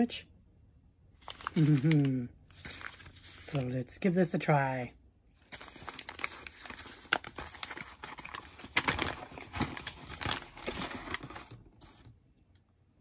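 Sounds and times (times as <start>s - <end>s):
foil wrapper crinkling: 1.2s - 3.7s, 5.4s - 12.1s.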